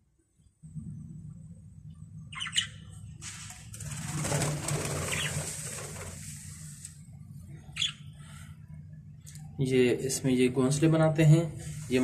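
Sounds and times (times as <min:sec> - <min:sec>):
steady low hum: 0:00.0 - 0:12.0
budgerigars chirping: 0:02.3 - 0:02.9, 0:05.0 - 0:05.5, 0:07.6 - 0:08.0
wings fluttering: 0:03.2 - 0:07.0.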